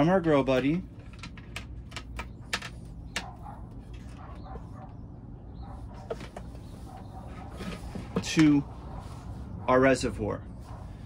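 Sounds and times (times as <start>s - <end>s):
steady low hum: 0.0s - 11.0s
plastic tubing clicks and rustles: 0.9s - 3.3s.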